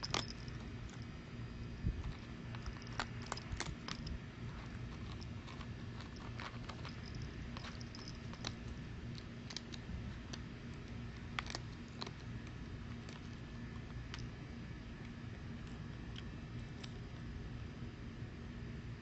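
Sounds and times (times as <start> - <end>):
cat crunching food: 0.0 - 17.9.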